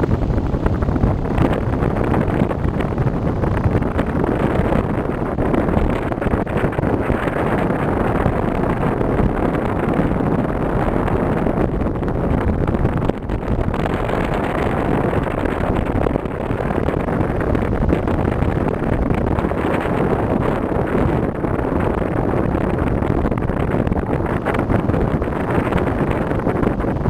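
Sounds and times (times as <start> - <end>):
wind buffeting microphone: 0.0 - 27.0.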